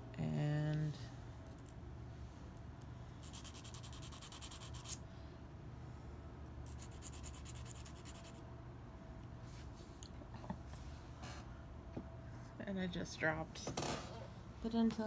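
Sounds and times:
nail file rasping on shell: 0:03.2 - 0:05.0, 0:06.6 - 0:08.4.

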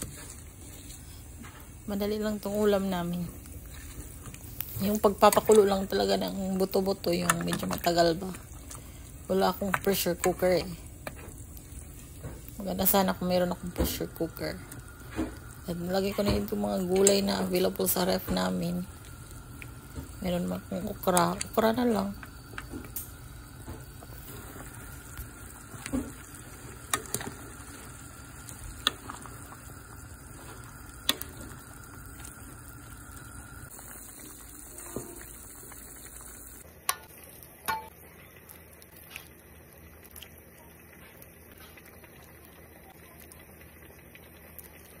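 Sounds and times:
ladle stirring soup: 0:00.0 - 0:01.8, 0:22.2 - 0:32.6
soup bubbling in pot: 0:00.0 - 0:45.0.

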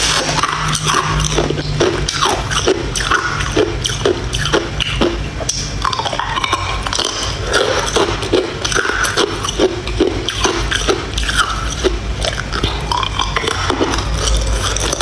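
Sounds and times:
ice crunching between teeth: 0:00.0 - 0:15.0.

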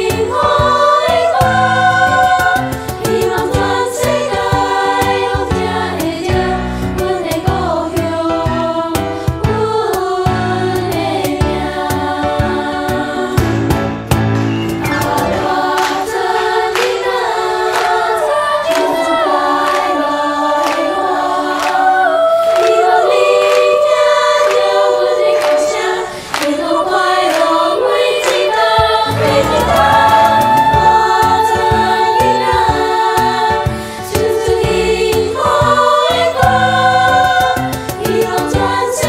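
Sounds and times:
children's choir singing: 0:00.0 - 0:13.6, 0:14.5 - 0:39.0
low accompaniment: 0:13.7 - 0:17.2, 0:29.0 - 0:33.0.

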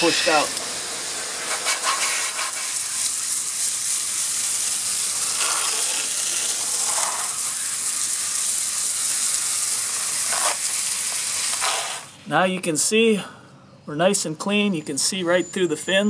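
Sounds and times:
hose spray hissing on metal fins: 0:00.0 - 0:12.2.

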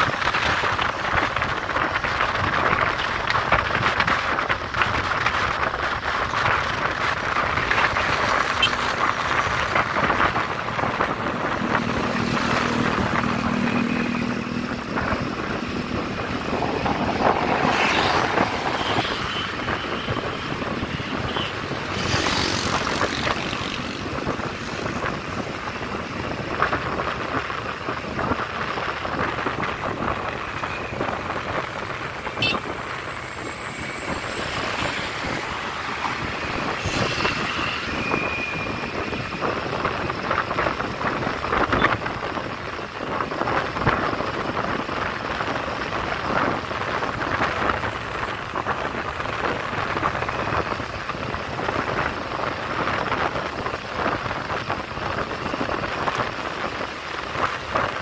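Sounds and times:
motorbike engines running: 0:00.0 - 0:58.0
road and wind noise: 0:00.0 - 0:58.0.

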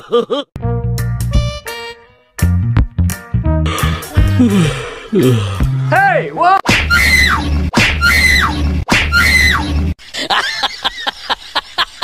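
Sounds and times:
snickering laughter: 0:10.1 - 0:12.0.

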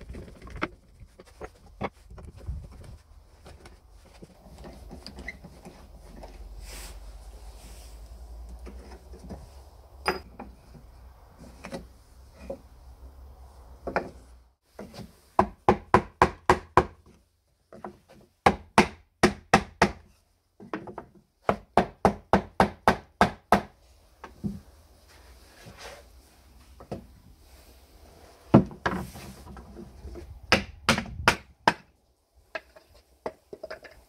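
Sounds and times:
hammer striking wood: 0:15.4 - 0:17.0, 0:18.4 - 0:20.0, 0:21.5 - 0:23.7, 0:30.5 - 0:31.9.

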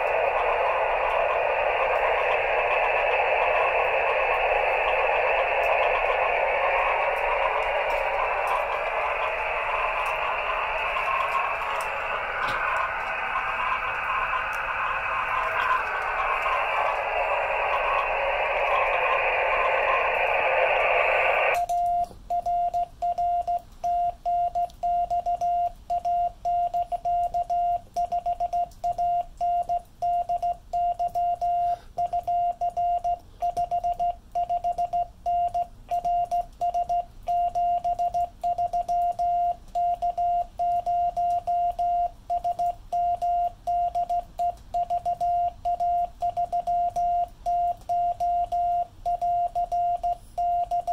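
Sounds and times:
radio receiver hiss: 0:00.0 - 0:21.6.

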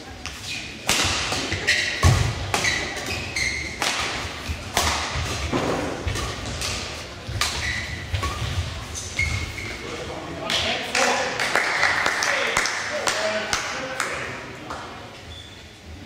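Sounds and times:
shoes squeaking on court: 0:00.1 - 0:10.0, 0:15.2 - 0:15.9
racket hitting shuttlecock: 0:00.8 - 0:09.5.

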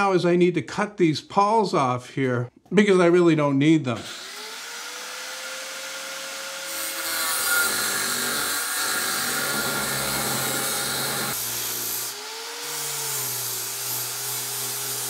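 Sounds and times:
angle grinder cutting metal: 0:04.0 - 0:15.0
grinder spinning up: 0:04.0 - 0:15.0.

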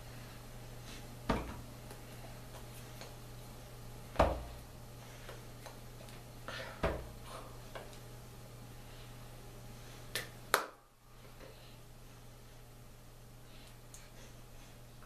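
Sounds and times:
steady low hum: 0:00.0 - 0:15.0
hands slapping: 0:10.1 - 0:10.8.

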